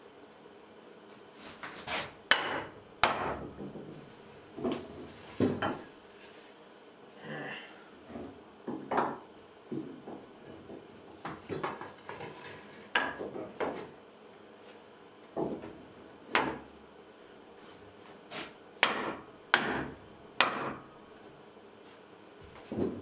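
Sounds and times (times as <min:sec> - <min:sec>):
wood knocking on wood: 0:02.3 - 0:05.8, 0:08.1 - 0:13.9, 0:15.3 - 0:16.7, 0:18.8 - 0:20.8.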